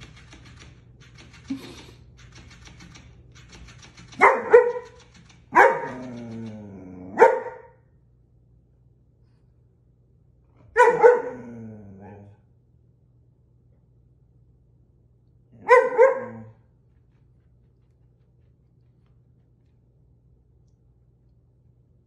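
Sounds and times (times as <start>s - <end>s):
dog barking: 4.2s - 6.2s, 7.1s - 7.8s, 10.7s - 12.2s, 15.6s - 16.6s.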